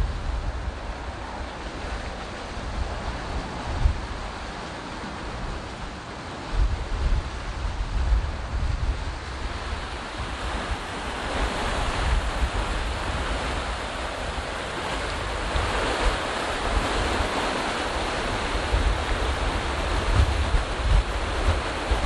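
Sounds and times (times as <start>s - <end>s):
water rushing in canal: 0.0s - 22.0s
wind buffeting microphone: 0.0s - 22.0s.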